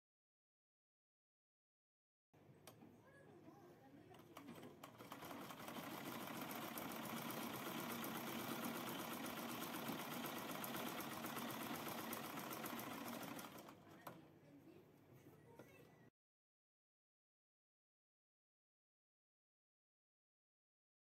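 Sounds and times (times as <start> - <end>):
sewing machine stitching: 4.2 - 14.2.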